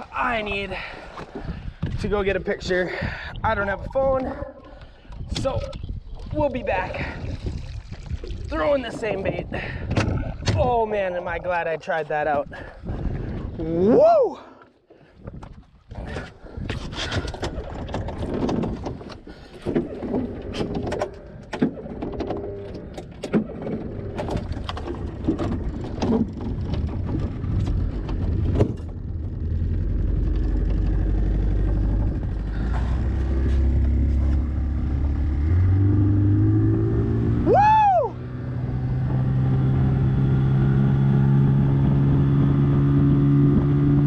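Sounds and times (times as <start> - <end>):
outboard motor running: 0.0 - 13.9, 15.2 - 44.0
gear knocking and clattering: 16.7 - 34.5.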